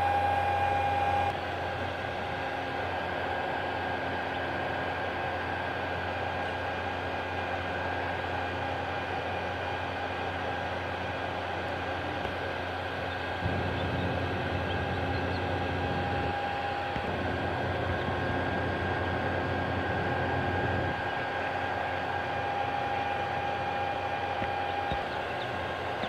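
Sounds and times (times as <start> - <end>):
thin high whine: 0.0 - 6.1, 12.4 - 26.0
mechanical hum with hiss: 0.0 - 26.0.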